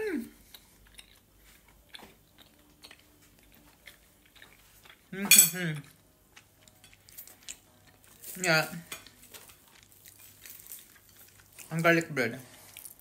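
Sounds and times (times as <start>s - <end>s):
cutlery clinking on plate: 5.2s - 5.6s.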